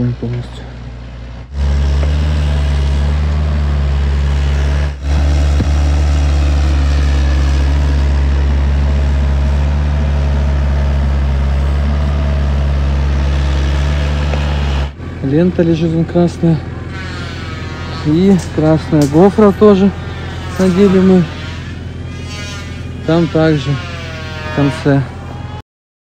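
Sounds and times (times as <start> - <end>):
excavator diesel engine running: 0.0 - 25.6.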